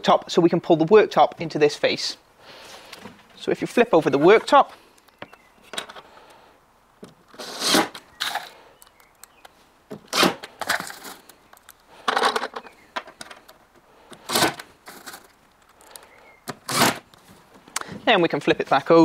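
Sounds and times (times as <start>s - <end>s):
cordless drill driving screws: 16.6s - 17.0s.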